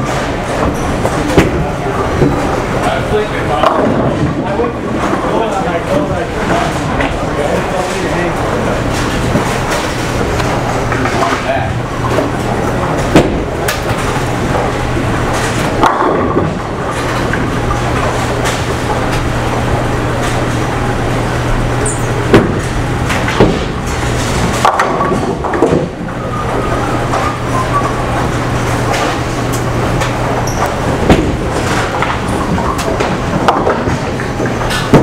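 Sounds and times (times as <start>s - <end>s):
bowling balls rolling rumble: 0.0s - 35.0s
bowling pins crashing: 22.2s - 35.0s.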